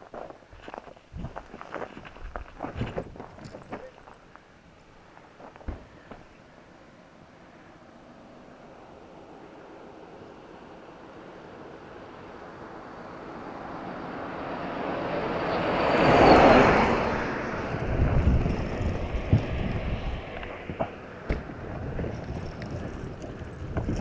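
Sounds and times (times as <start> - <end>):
vehicle driving past: 8.4 - 23.2.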